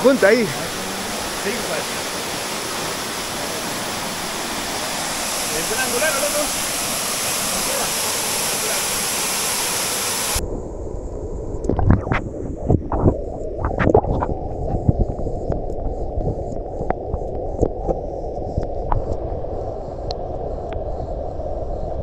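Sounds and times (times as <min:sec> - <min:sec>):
water lapping: 0:00.0 - 0:10.4
water splashes: 0:00.0 - 0:10.4
waterfall rushing: 0:00.0 - 0:10.4.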